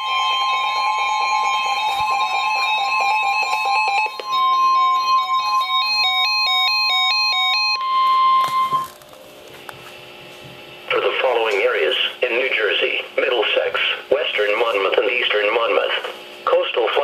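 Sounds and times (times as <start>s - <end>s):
steady warning alarm tone: 0.0s - 9.0s
faint hum: 0.0s - 17.0s.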